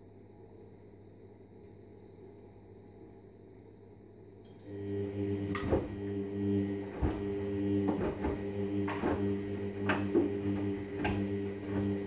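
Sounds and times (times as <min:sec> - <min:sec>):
washing machine motor hum: 0:04.6 - 0:12.0.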